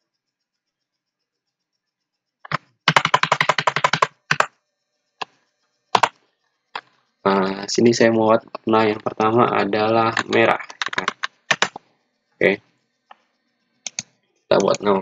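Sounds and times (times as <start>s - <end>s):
typing on computer keyboard: 2.5s - 4.5s, 6.0s - 6.2s, 9.9s - 11.8s, 13.9s - 15.0s.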